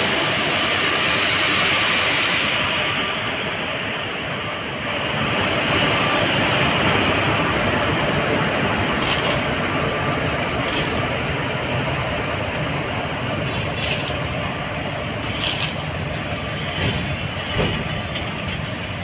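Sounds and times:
freight train rumbling past: 0:00.0 - 0:19.0
high wheel squeals: 0:08.3 - 0:19.0.

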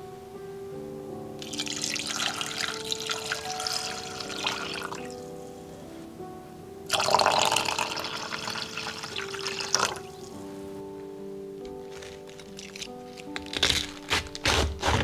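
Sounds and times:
soft background music: 0:00.0 - 0:15.0
water pouring into a saucepan: 0:01.4 - 0:05.1, 0:06.9 - 0:10.0.

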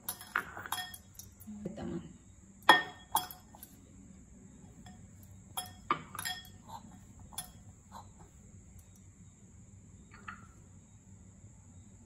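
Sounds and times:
glass clinking on bowl: 0:00.0 - 0:01.5, 0:02.6 - 0:03.8, 0:05.6 - 0:07.6.

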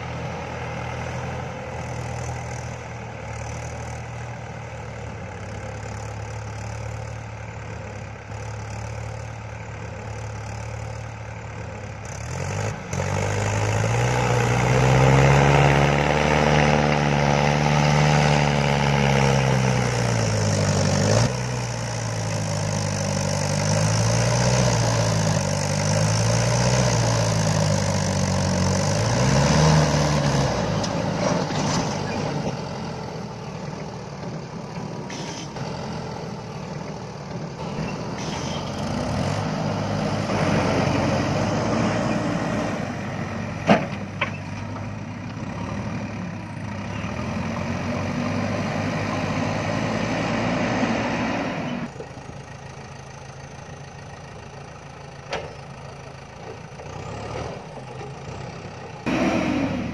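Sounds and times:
diesel engines running: 0:00.0 - 0:59.9
engine revving: 0:11.8 - 0:51.9, 0:56.8 - 0:59.9.

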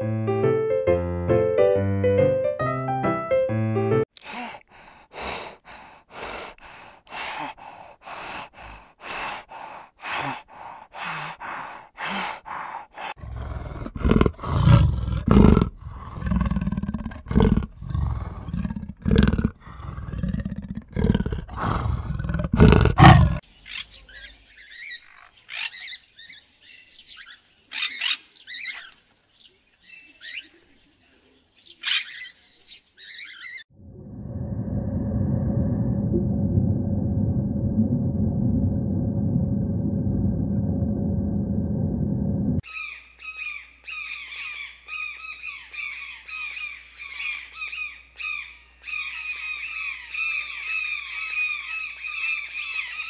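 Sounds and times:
cheetah deep rumbling: 0:13.2 - 0:23.4, 0:33.7 - 0:42.6.

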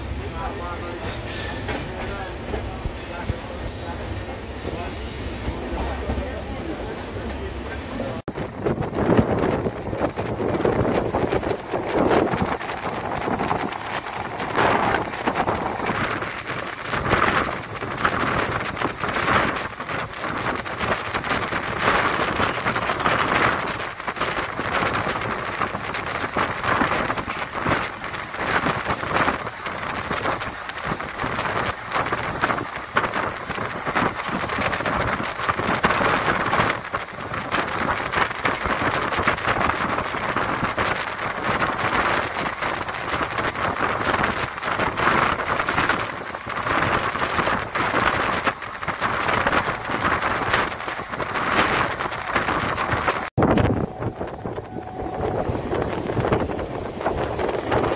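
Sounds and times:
train rushing at speed: 0:00.0 - 0:57.9
wheel-on-rail noise: 0:00.0 - 0:57.9
wind buffeting microphone: 0:06.9 - 0:57.9.

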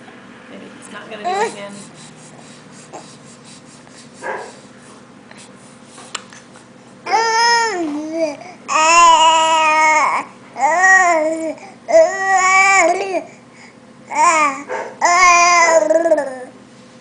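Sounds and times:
baby vocalizing aah: 0:07.1 - 0:13.3, 0:14.1 - 0:16.5.

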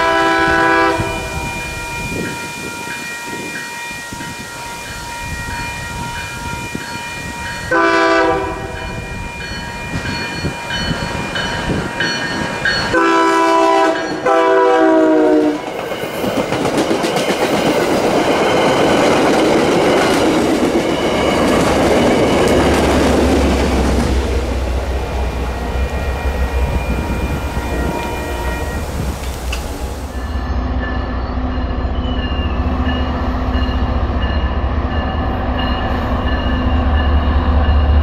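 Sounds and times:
locomotive air horn: 0:00.0 - 0:01.6, 0:07.7 - 0:08.9, 0:12.9 - 0:15.6, 0:26.6 - 0:30.2
railroad crossing bell ringing: 0:00.0 - 0:38.0
train wheels clacking on rails: 0:05.9 - 0:30.3.

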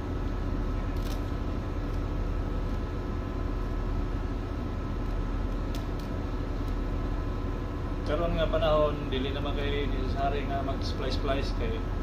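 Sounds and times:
wire rope clicks: 0:00.9 - 0:02.0, 0:05.0 - 0:06.8.

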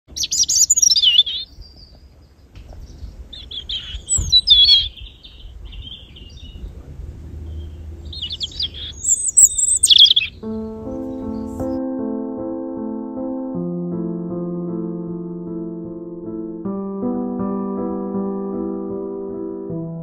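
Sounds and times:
robin singing: 0:00.1 - 0:11.8.

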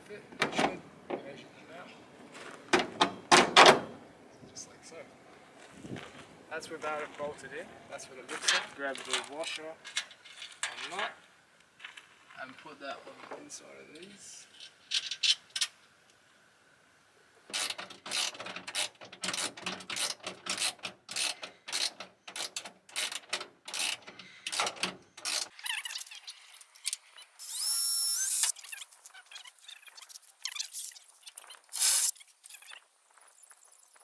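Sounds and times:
ratchet wrench clicking: 0:17.5 - 0:25.9, 0:31.7 - 0:32.1.

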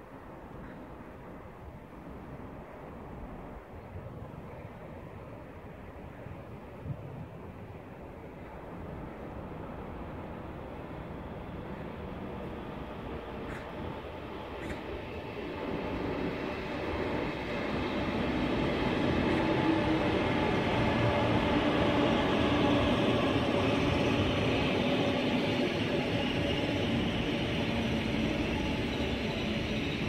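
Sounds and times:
train rail rumble: 0:00.0 - 0:30.0.

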